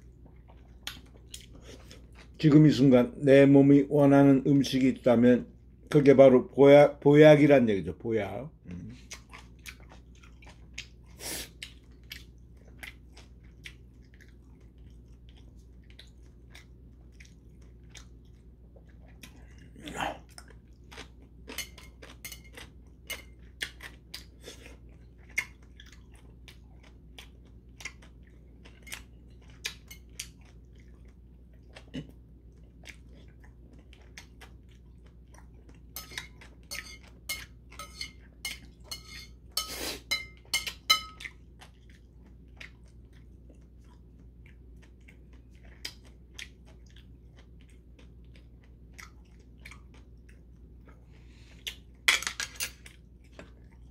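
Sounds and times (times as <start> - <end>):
wet chewing clicks and crunches: 0.1 - 2.4, 9.0 - 37.6, 41.2 - 51.0.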